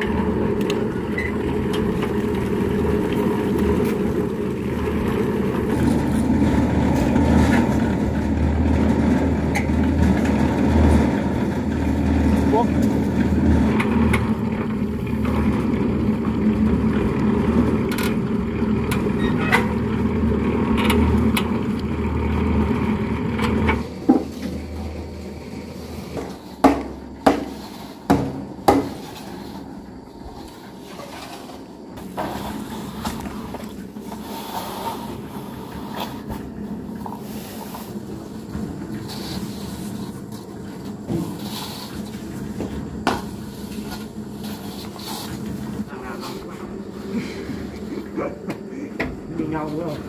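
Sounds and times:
wooden boards scraping wet cement: 0.0 - 48.1
cement mixer churning hum: 0.0 - 50.0
sharp knocks: 26.2 - 29.0.

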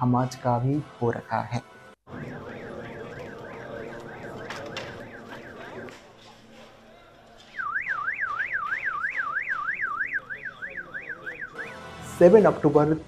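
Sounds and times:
electronic siren yelping: 2.1 - 5.9, 7.6 - 11.9.

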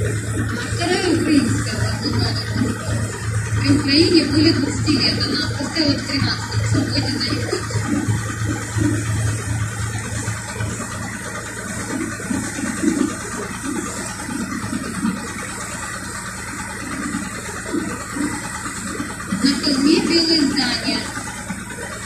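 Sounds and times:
boat engine humming: 0.0 - 22.0
water splashing along hull: 0.0 - 22.0.

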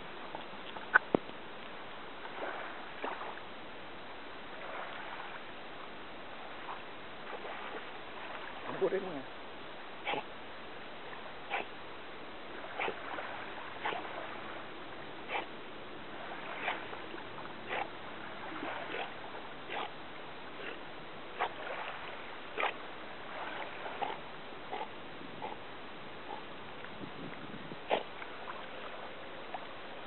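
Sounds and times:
water splashing: 0.0 - 3.6, 4.4 - 30.0
waves lapping at shore: 0.0 - 30.0.

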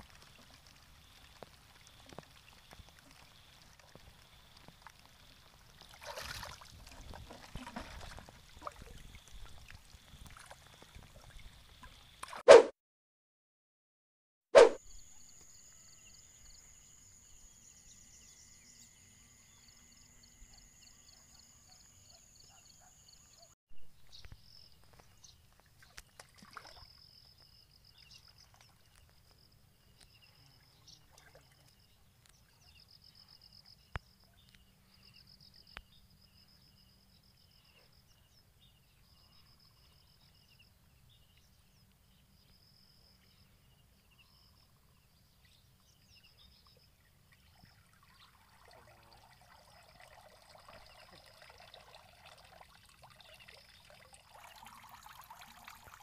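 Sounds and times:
faint knocks and splashes in water: 0.0 - 12.4, 24.3 - 27.0.

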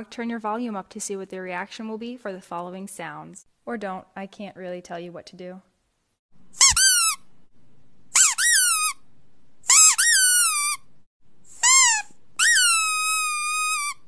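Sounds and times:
squeaky dog toy squeaking: 6.6 - 7.3, 8.1 - 9.0, 9.6 - 10.9, 11.5 - 14.0.

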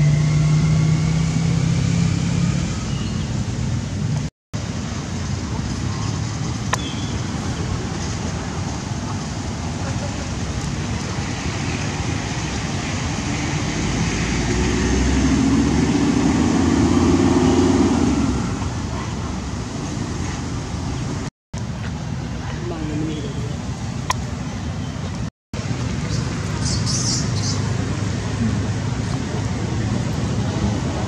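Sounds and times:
traffic rumble and hiss: 0.0 - 31.0
vehicle passing: 7.2 - 21.3.

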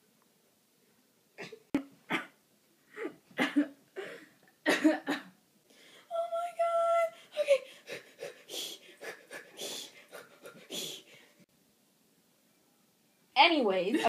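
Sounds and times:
woman coughing: 1.4 - 2.4, 3.0 - 5.4
woman crying wail: 6.1 - 11.1.

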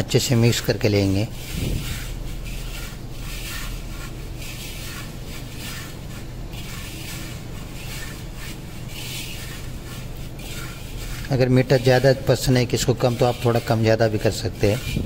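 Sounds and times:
hand scraping mixture in metal pan: 0.0 - 15.0
steady low hum: 0.0 - 15.0.

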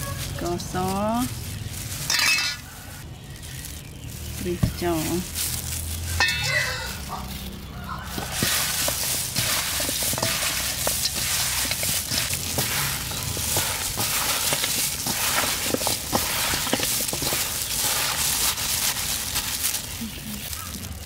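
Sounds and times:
plastic gloves crinkling: 0.0 - 21.0
small clicks and crackles: 0.0 - 21.0
wet squishing of raw meat: 0.0 - 21.0.

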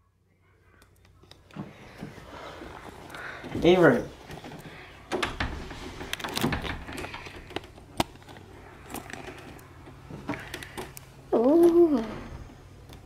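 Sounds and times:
doorknob clicking and rattling: 5.1 - 7.5.

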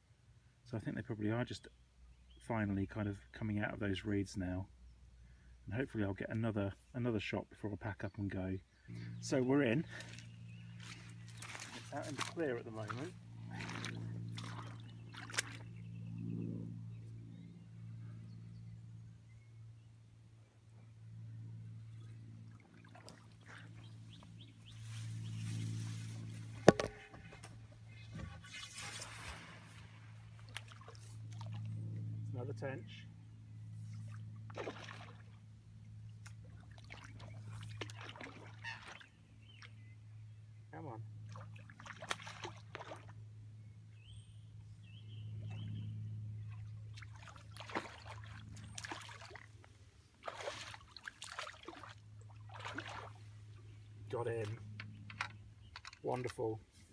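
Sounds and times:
low steady hum: 0.0 - 56.9
small birds chirping: 7.9 - 22.2, 22.8 - 28.6, 36.1 - 41.0, 43.6 - 49.4, 52.6 - 56.6
fish splashing at surface: 10.9 - 15.7, 34.5 - 35.3, 36.6 - 39.1, 47.0 - 49.5, 50.2 - 53.2.

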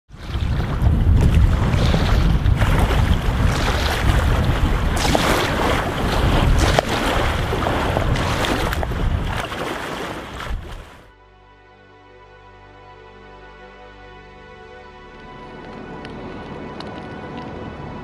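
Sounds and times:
water rushing past boat: 0.1 - 11.1, 15.1 - 18.0
wind buffeting microphone: 0.1 - 11.1.

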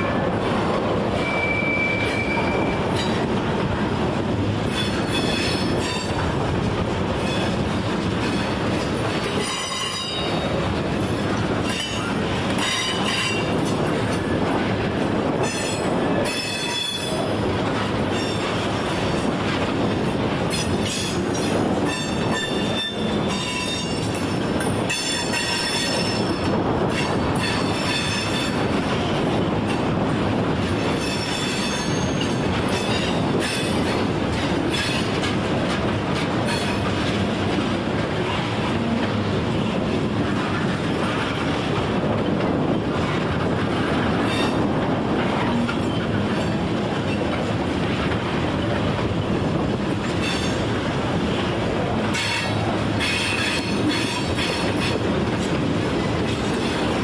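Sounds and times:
freight train rumbling by: 0.0 - 57.0
steel wheel squeal: 1.2 - 3.2, 20.6 - 24.2, 31.0 - 33.8.

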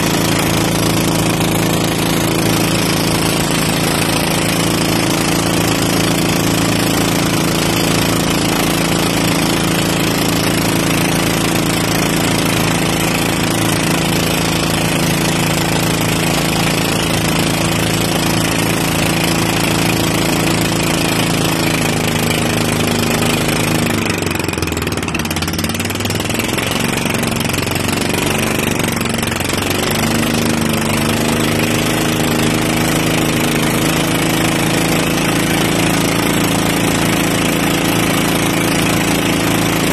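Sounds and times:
boat engine running: 0.0 - 39.9
water rushing along hull: 0.0 - 39.9.

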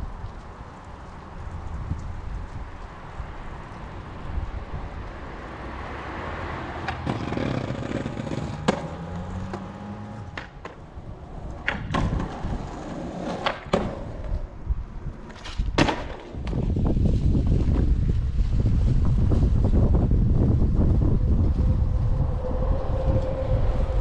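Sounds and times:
skateboard wheels rolling on asphalt: 0.0 - 24.0
skateboard clacking on ground: 6.8 - 16.9.

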